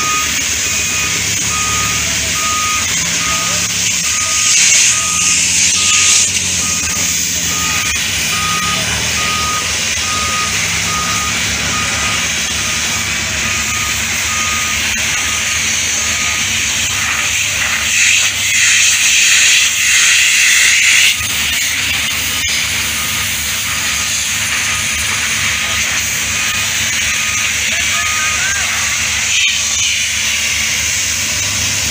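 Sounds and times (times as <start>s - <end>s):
reversing alarm beeping: 0.0s - 31.5s
diesel engine running: 0.0s - 31.9s
hissing rush: 0.2s - 14.2s.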